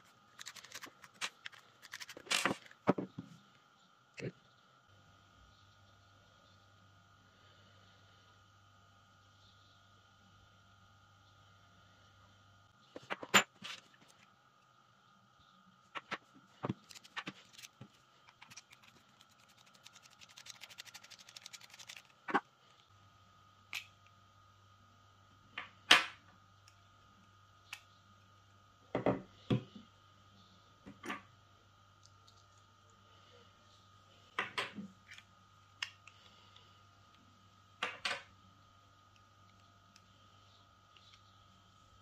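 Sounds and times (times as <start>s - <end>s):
fast ticking: 18.5s - 22.1s.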